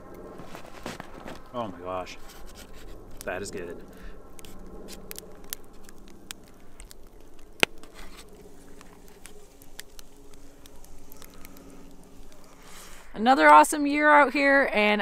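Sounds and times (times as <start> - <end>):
fork scraping in crinkling foil: 2.1 - 13.1
small clicks: 4.4 - 12.7.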